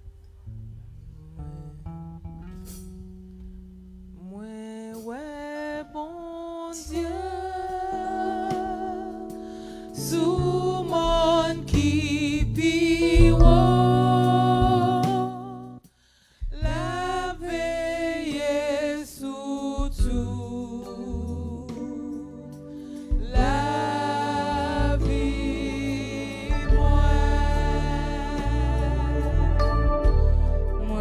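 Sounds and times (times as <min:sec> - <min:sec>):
woman singing with vibrato: 0:04.2 - 0:09.3, 0:09.9 - 0:15.8, 0:23.2 - 0:30.0, 0:30.8 - 0:31.0.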